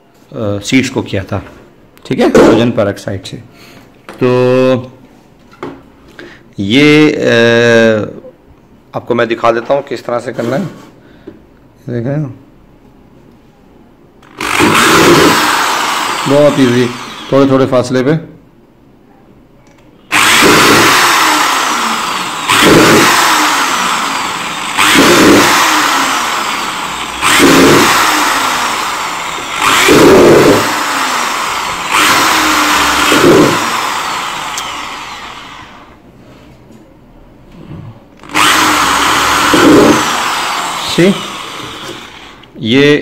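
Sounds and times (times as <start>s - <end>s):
electric drill drilling plastic: 14.2s - 17.6s, 20.1s - 36.0s, 38.2s - 42.5s.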